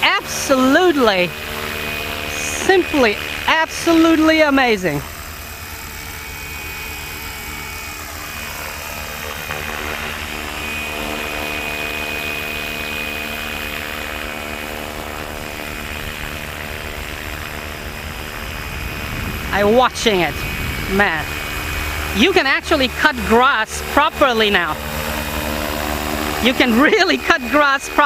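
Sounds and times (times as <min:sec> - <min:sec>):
rc helicopter motor whine: 0:00.0 - 0:28.0.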